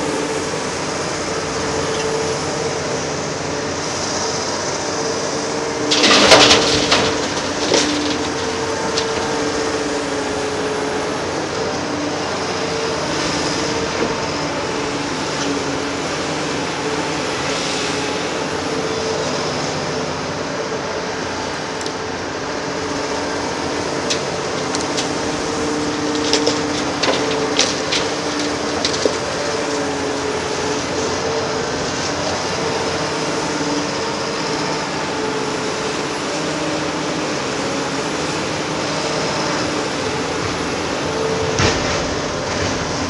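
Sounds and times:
diesel machinery droning: 0:00.0 - 0:43.0.

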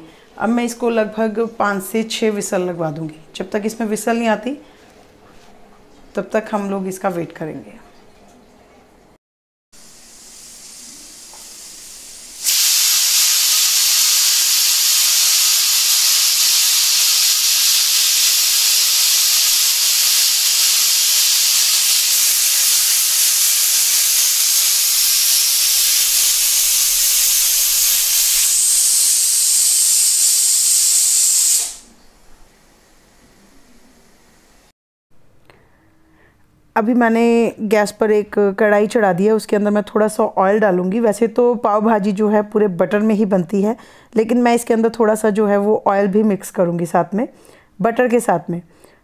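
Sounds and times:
pressure cooker steam hissing: 0:09.8 - 0:32.0
pressure cooker whistle: 0:10.2 - 0:32.0.

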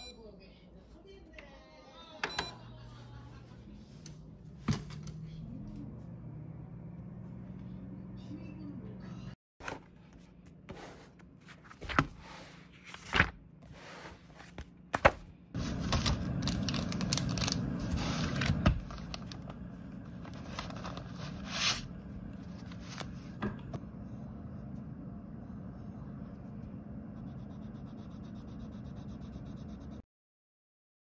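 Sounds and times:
paper rustling and scraping: 0:09.6 - 0:23.4.

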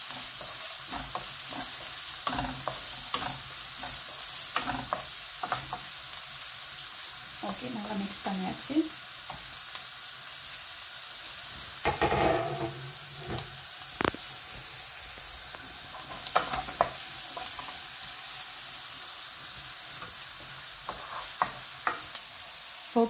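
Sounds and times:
wooden spatula scraping pan: 0:00.0 - 0:05.8, 0:11.9 - 0:13.5, 0:20.0 - 0:22.1
vegetables sizzling in wok: 0:00.0 - 0:23.0.

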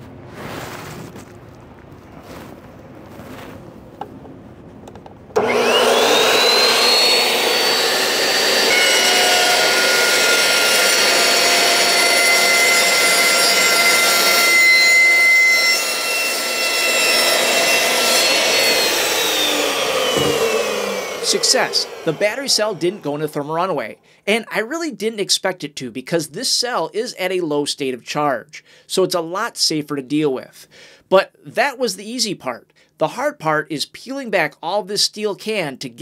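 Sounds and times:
electric chop saw motor whining: 0:05.4 - 0:23.4
saw blade cutting battery cell: 0:05.4 - 0:23.4.

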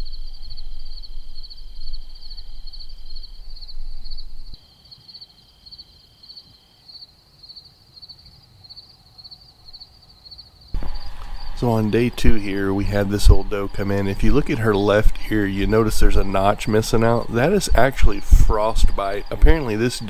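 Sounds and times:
crickets chirping: 0:00.0 - 0:20.0
low rumble: 0:10.8 - 0:20.0.

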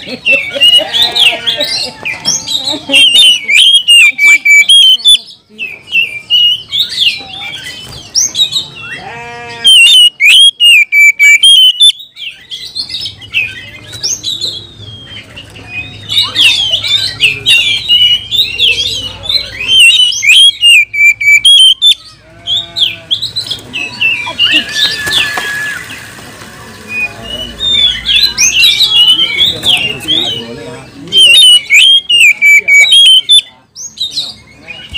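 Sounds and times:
bird singing chirps and whistles: 0:02.9 - 0:09.0, 0:09.7 - 0:22.1, 0:31.1 - 0:34.9.

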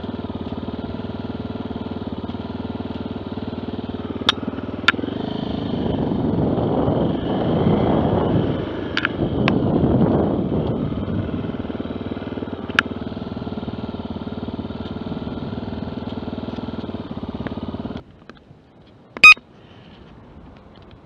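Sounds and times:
vehicle engine running: 0:00.0 - 0:21.0
short electronic beep: 0:19.2 - 0:19.4.

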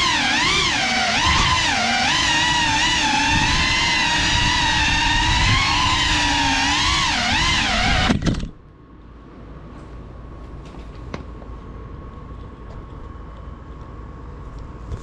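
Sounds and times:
drone motors whining: 0:00.0 - 0:08.6.

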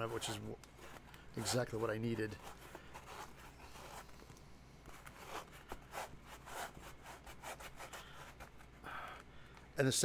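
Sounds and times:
abrasive tool rasping foam: 0:00.0 - 0:04.0.

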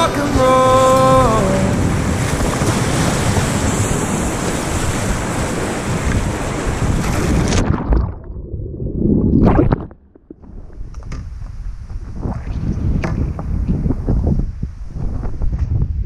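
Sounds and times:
whitewater rushing: 0:00.0 - 0:07.8
wind on microphone: 0:00.0 - 0:16.0.

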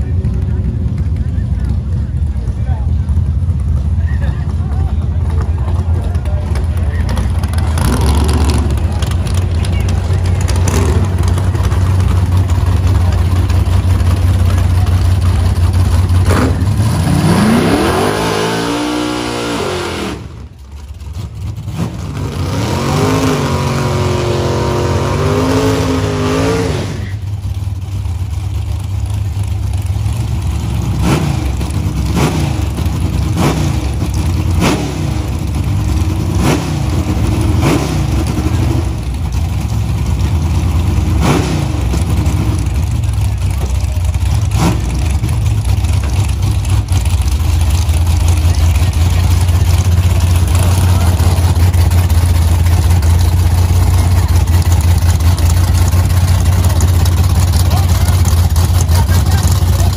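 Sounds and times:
race car engines revving: 0:00.0 - 0:59.9.

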